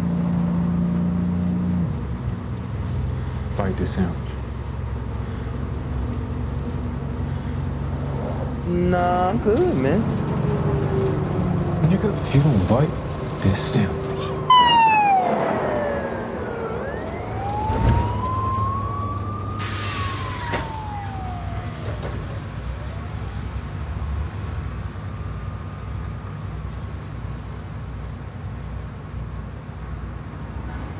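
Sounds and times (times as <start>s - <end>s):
siren wailing: 10.3s - 23.6s.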